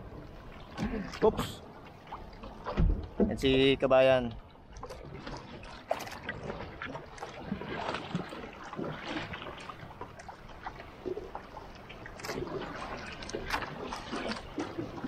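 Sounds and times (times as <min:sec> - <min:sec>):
water splashing against boat hull: 0:00.0 - 0:15.0.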